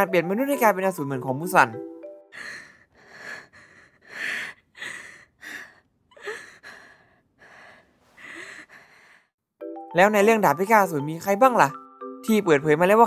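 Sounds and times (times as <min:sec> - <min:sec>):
ragged breathy gasps: 0:02.4 - 0:09.4.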